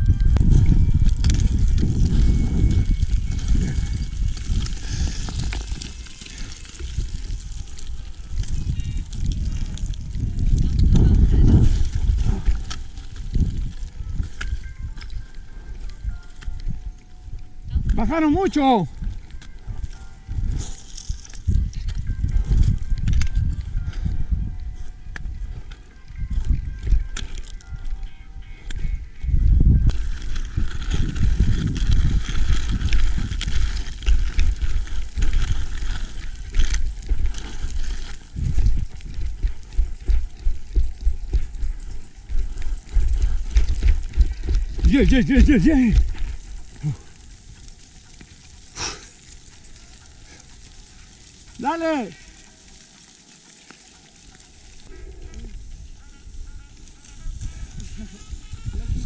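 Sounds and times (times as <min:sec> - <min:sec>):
scree shifting underfoot: 0:00.0 - 0:17.6, 0:28.6 - 0:59.0
wind buffeting microphone: 0:00.0 - 0:52.4, 0:54.3 - 0:59.0
boots crunching on gravel: 0:29.9 - 0:55.0
person shouting: 0:44.8 - 0:46.0, 0:51.6 - 0:52.2.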